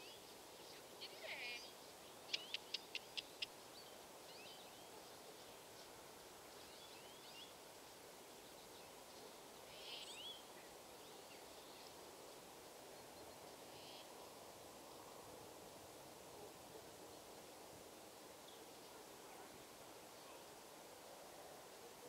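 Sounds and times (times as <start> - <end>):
bird chirps: 0.0 - 5.9.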